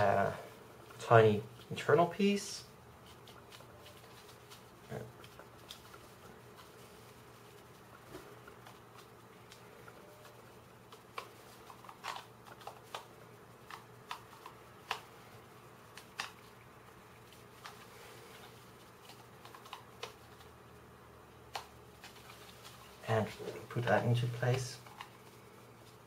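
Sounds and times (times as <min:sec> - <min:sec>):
low room hum: 0:00.0 - 0:26.0
plastic puzzle pieces clicking: 0:11.0 - 0:15.1, 0:19.1 - 0:20.5.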